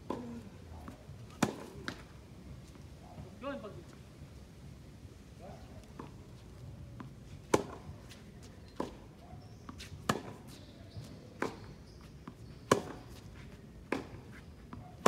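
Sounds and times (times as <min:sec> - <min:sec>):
tennis ball struck by racquets: 0:00.0 - 0:02.1, 0:07.0 - 0:07.9, 0:09.7 - 0:10.7, 0:12.4 - 0:13.2, 0:13.8 - 0:14.2.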